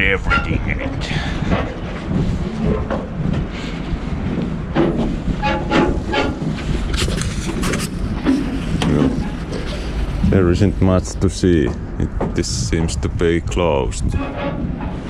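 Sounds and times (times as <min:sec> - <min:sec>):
wind buffeting microphone: 0:00.0 - 0:15.0
sharp knocks and clicks: 0:04.3 - 0:09.7.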